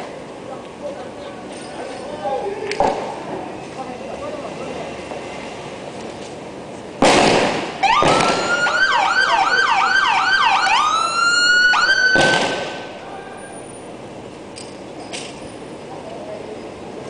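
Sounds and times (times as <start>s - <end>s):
siren horn blast: 7.8s - 12.8s
police siren wailing: 7.8s - 13.0s.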